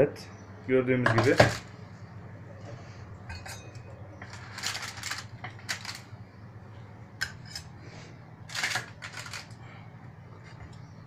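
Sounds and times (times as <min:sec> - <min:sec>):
steady low hum: 0:00.0 - 0:11.0
baking paper crinkling: 0:04.2 - 0:06.1, 0:08.5 - 0:09.6.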